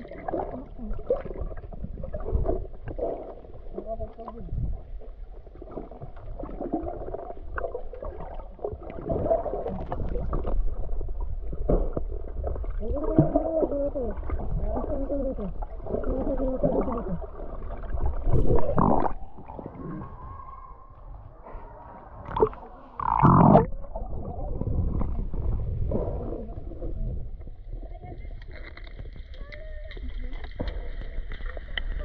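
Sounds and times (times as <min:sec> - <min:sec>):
muffled water gurgling and sloshing: 0:00.0 - 0:32.0
water surge: 0:12.6 - 0:27.5
muffled wavering pitched sounds: 0:12.8 - 0:28.8.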